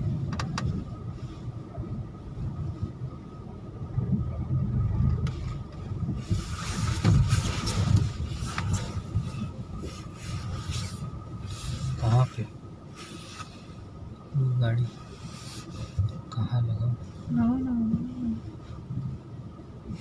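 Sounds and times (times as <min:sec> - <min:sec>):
engine and road rumble: 0:00.0 - 0:20.0
car rattling and jolting: 0:03.9 - 0:13.9.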